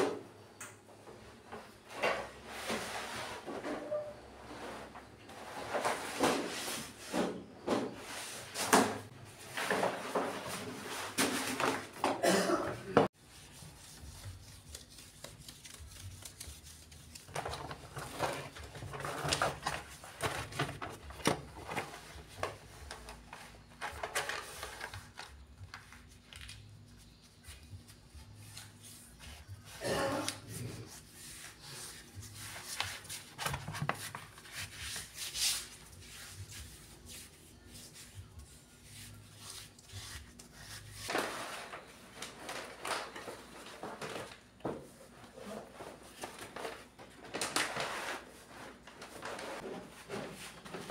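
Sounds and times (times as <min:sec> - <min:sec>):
vinyl sheet rustling and rubbing: 0:13.2 - 0:50.9.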